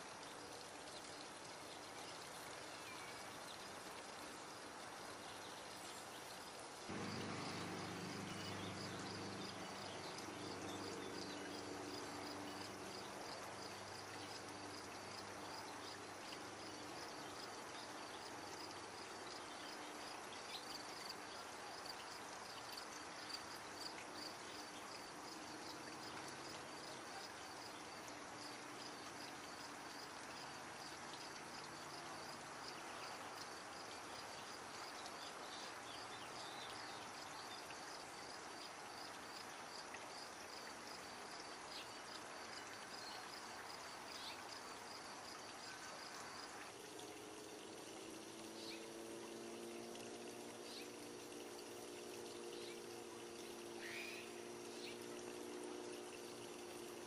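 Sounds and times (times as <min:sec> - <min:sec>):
insect chirping: 0:00.0 - 0:57.0
outdoor hiss: 0:00.0 - 0:57.0
low hum: 0:06.9 - 0:11.0.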